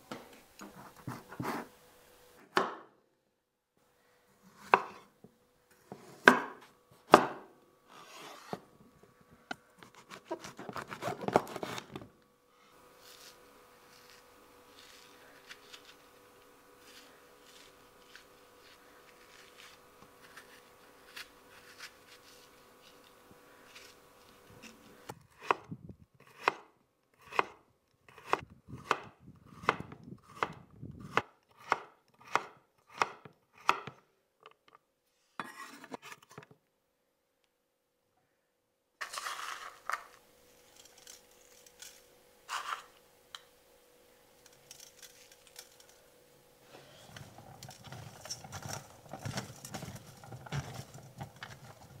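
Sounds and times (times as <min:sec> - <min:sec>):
spoon scraping melon: 0:13.0 - 0:25.0, 0:39.0 - 0:43.0
salt sprinkled in steel bowl: 0:39.0 - 0:43.0.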